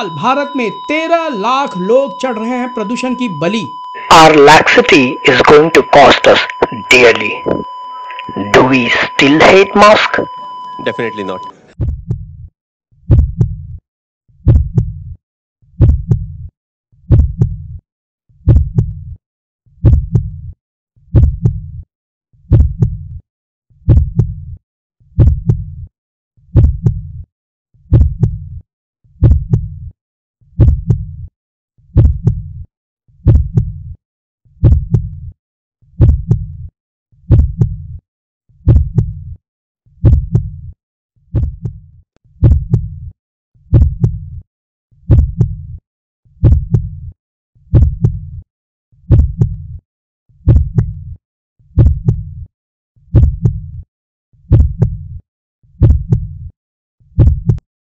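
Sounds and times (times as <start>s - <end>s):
deep thumping beat with click: 11.8s - 12.5s, 13.1s - 13.8s, 14.4s - 15.2s, 15.8s - 16.5s, 17.1s - 17.8s, 18.4s - 19.1s, 19.8s - 20.5s, 21.1s - 21.8s, 22.5s - 23.2s, 23.9s - 24.6s, 25.2s - 25.8s, 26.5s - 27.1s, 27.9s - 28.6s, 29.2s - 29.8s, 30.6s - 31.2s, 32.0s - 32.6s, 33.3s - 33.9s, 34.6s - 35.3s, 36.0s - 36.6s, 37.3s - 37.9s, 38.6s - 39.2s, 40.0s - 40.6s, 41.3s - 43.0s, 43.7s - 44.4s, 45.1s - 45.7s, 46.4s - 47.0s, 47.7s - 48.4s, 49.1s - 49.8s, 50.4s - 51.0s, 51.8s - 52.3s, 53.2s - 53.8s, 54.5s - 55.0s, 55.8s - 56.4s, 57.2s - 57.7s.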